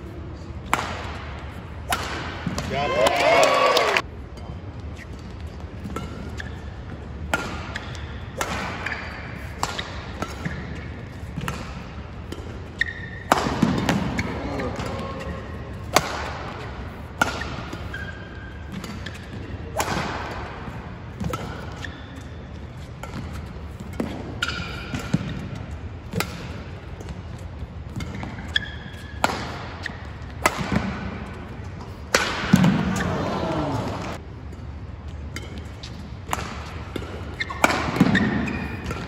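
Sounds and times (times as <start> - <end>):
shuttlecock struck with rackets: 0.6 - 2.7, 7.2 - 10.7, 11.3 - 15.0, 18.7 - 21.9, 27.9 - 31.3, 32.0 - 33.0, 35.3 - 39.0
shoes squeaking on court floor: 4.3 - 39.0.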